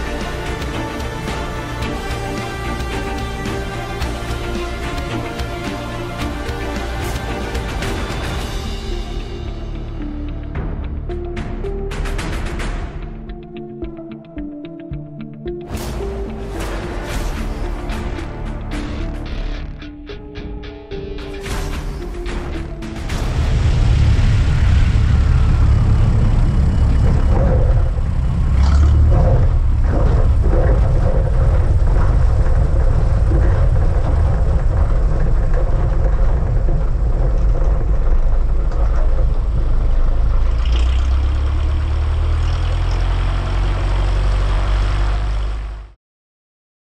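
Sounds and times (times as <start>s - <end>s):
propeller plane engine rumble: 23.1s - 45.9s.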